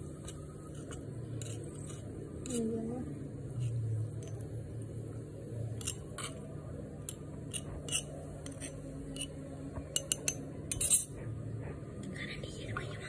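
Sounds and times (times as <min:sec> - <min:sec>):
low steady hum: 0:00.0 - 0:13.0
metal spatula tapping and scraping: 0:00.1 - 0:02.7, 0:05.8 - 0:06.4, 0:07.0 - 0:11.0.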